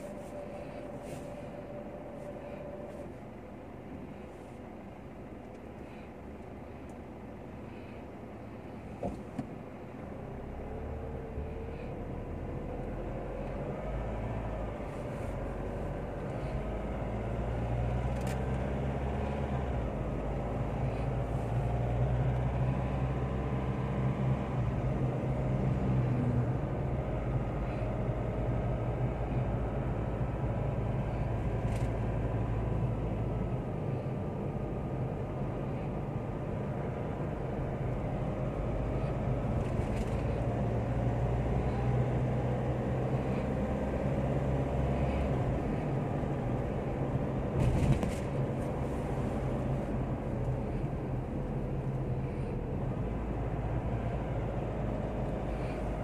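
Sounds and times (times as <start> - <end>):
car cabin road hum: 0.0 - 56.0.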